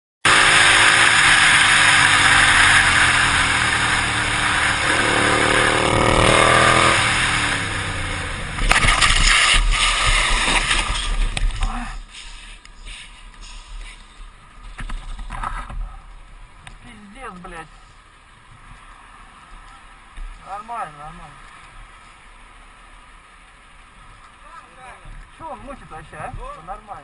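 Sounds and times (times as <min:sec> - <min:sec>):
motorcycle engine revving: 0:00.2 - 0:10.7
motorcycle clattering and scraping on road: 0:00.3 - 0:22.4
motorcycle crash: 0:08.5 - 0:11.7.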